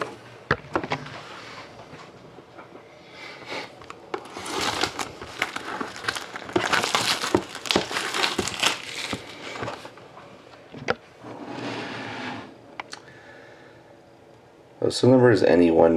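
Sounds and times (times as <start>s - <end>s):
plastic shrink wrap crinkling: 3.8s - 10.0s.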